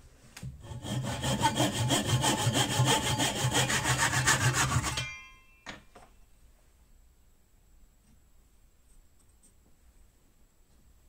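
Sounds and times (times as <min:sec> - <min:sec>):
hand saw cutting plywood: 0:00.6 - 0:05.0
saw blade ringing: 0:01.0 - 0:06.1.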